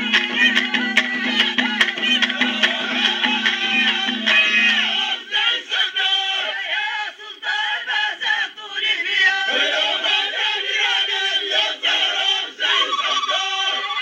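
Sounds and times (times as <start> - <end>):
drum strikes: 0.0 - 5.3
male chorus chanting: 0.0 - 13.9.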